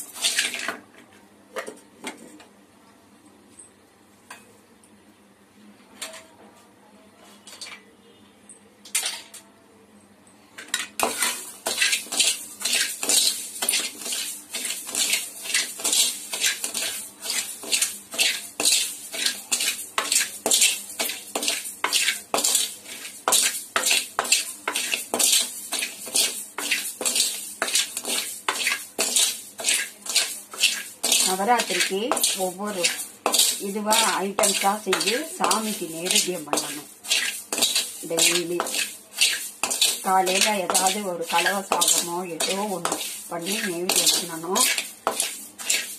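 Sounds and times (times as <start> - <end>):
metal spoon scraping rice in pan: 0.0 - 0.7, 10.7 - 45.9.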